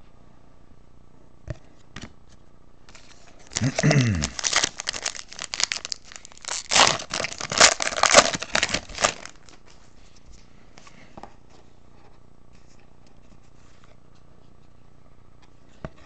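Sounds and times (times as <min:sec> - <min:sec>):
cards being handled: 0:01.8 - 0:11.0
foil wrapper crinkling and tearing: 0:02.9 - 0:09.7.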